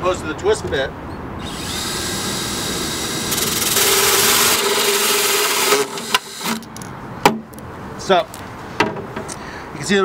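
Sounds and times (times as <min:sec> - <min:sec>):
cordless drill motor whine: 0:01.4 - 0:06.7
hole saw grinding: 0:01.4 - 0:06.7.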